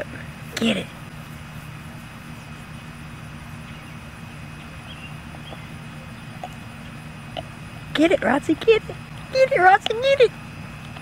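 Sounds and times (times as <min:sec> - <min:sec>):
low background hum: 0:00.0 - 0:11.0
puppy gnawing on bone: 0:05.3 - 0:07.5.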